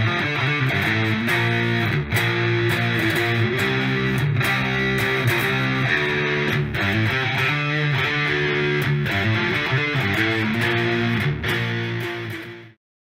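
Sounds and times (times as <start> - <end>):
guitar instrumental music: 0.0 - 12.8.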